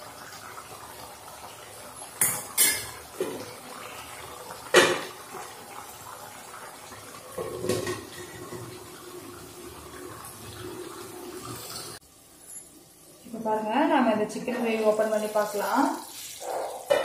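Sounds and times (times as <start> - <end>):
metal ladle clinking on pot: 2.2 - 3.0
metal lid clattering on pot: 2.2 - 3.4.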